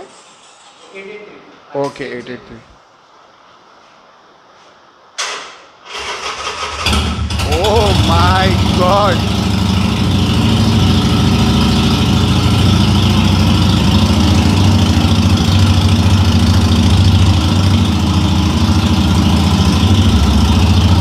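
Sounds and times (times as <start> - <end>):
motorcycle engine idling: 6.8 - 21.0.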